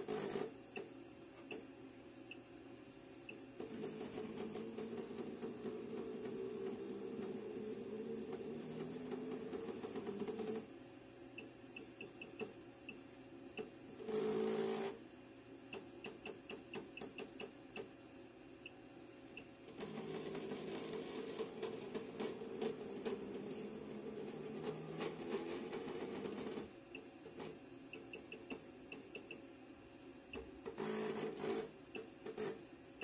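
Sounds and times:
machine feed frame whirring: 3.6s - 10.7s, 19.6s - 27.6s.

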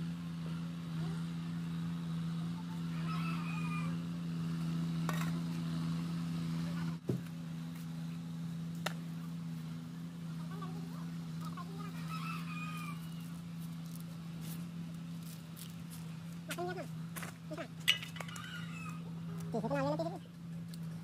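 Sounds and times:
rooster crowing: 2.9s - 4.2s, 11.8s - 13.4s, 18.2s - 19.2s.

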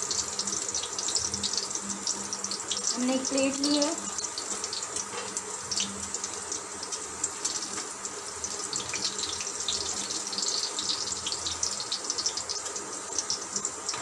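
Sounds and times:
food frying in hot oil: 0.0s - 14.0s.

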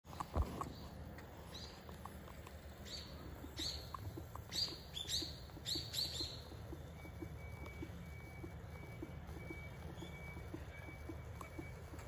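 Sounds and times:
kingfisher calling: 3.0s - 12.0s.

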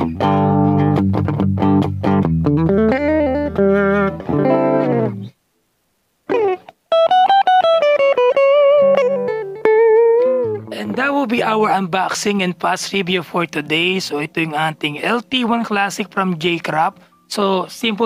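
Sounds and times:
electric guitar strummed chords: 0.0s - 5.3s, 6.3s - 11.5s
electric guitar lead line: 0.0s - 5.4s, 6.3s - 17.3s.

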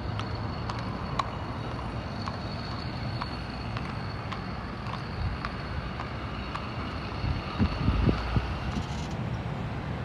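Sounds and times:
hooves clip-clopping on pavement: 0.0s - 10.0s
road traffic rumble: 0.0s - 10.0s
wind on microphone: 7.1s - 9.2s.

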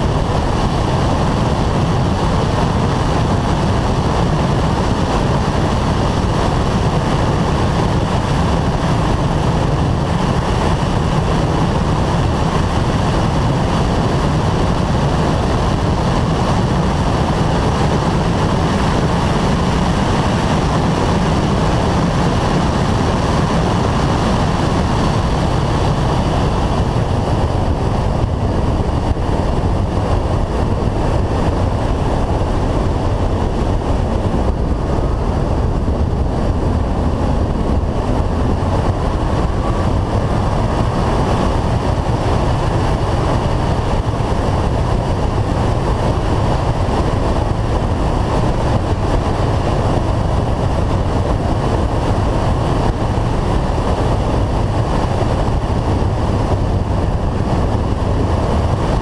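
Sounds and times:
muffled car engine running: 0.0s - 59.0s
wind rushing over camera: 0.0s - 59.0s.

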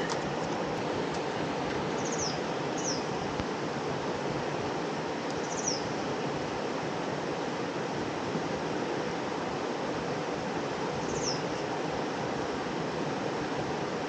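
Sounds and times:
river water rushing: 0.0s - 14.0s
bird chirps: 2.0s - 3.1s, 11.1s - 11.4s.

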